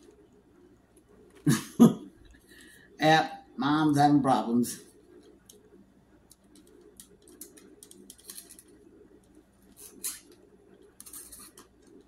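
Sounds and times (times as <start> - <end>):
faint steady hum: 0.0 - 12.0
plastic clicks and rustles: 6.3 - 10.4.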